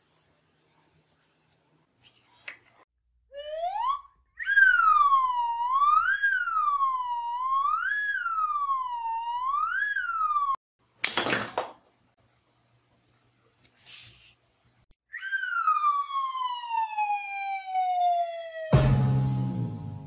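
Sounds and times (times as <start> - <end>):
electronic siren wail: 3.3 - 10.6, 15.1 - 20.0.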